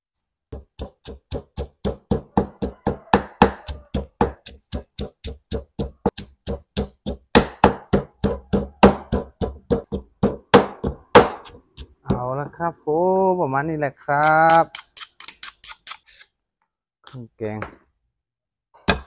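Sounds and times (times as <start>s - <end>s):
pestle pounding in stone mortar: 0.5s - 12.6s.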